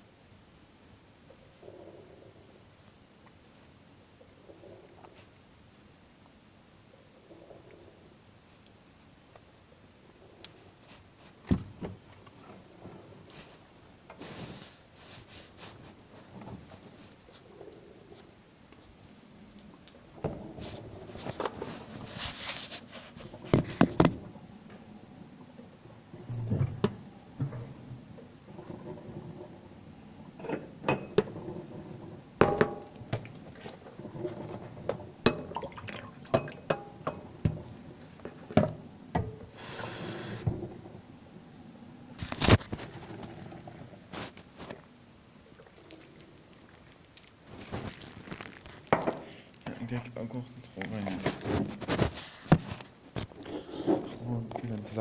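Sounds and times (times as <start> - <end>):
phone rustling and knocking: 22.7 - 24.3.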